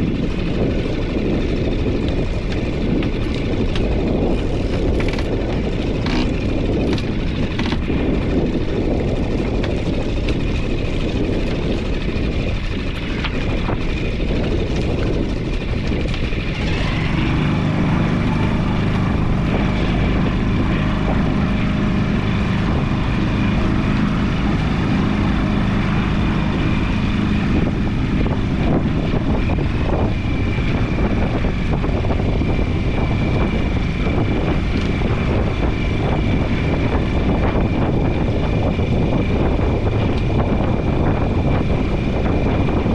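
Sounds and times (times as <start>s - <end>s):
outboard motor running: 0.0s - 42.9s.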